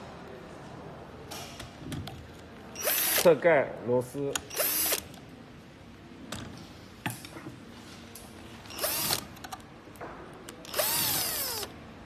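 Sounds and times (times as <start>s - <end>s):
cordless drill running: 2.8s - 3.3s, 4.5s - 5.1s, 8.7s - 9.3s, 10.7s - 11.7s.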